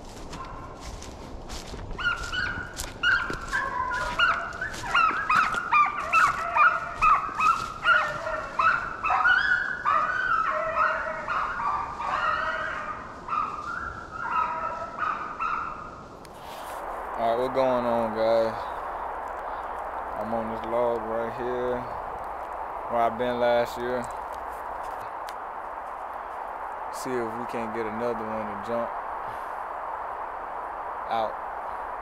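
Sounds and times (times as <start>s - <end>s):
hounds baying and yapping: 0.2s - 0.9s, 1.9s - 16.0s.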